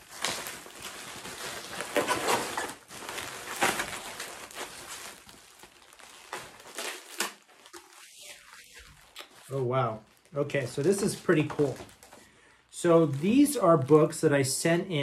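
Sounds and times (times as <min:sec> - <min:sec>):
bubble wrap crinkling: 0:00.0 - 0:14.2.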